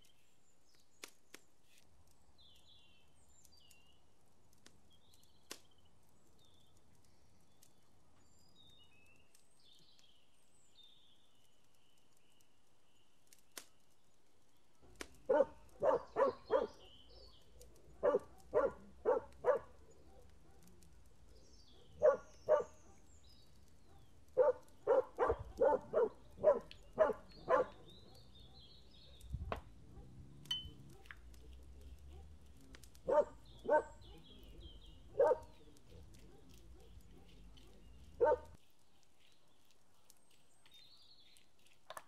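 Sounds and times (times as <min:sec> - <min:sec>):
dog barking: 0:15.3 - 0:17.0, 0:17.9 - 0:20.7, 0:21.7 - 0:23.1, 0:23.9 - 0:29.2, 0:30.8 - 0:38.6.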